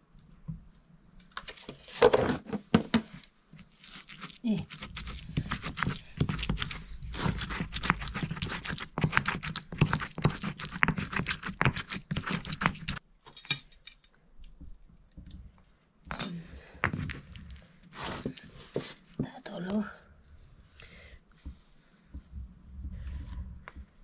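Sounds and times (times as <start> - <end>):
stone pestle grinding in mortar: 3.8 - 13.0.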